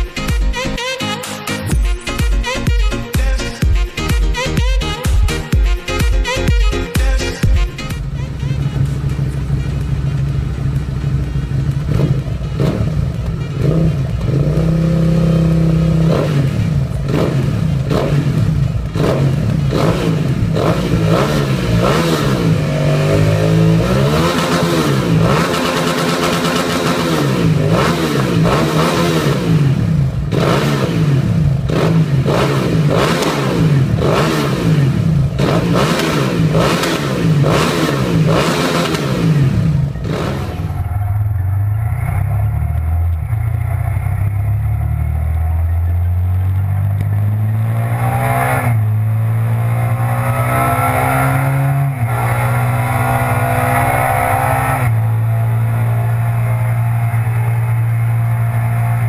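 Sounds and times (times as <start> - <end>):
motorcycle engine revving: 0.0 - 59.0
motorcycle accelerating hard: 7.8 - 59.0.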